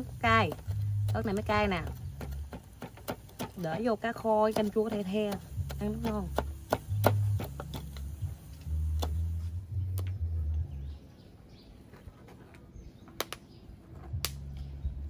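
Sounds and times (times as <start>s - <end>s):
ladle knocking cooking pot: 0.4s - 8.0s
knife chopping on wooden board: 0.4s - 8.1s, 8.9s - 9.2s
low steady hum: 5.5s - 15.0s.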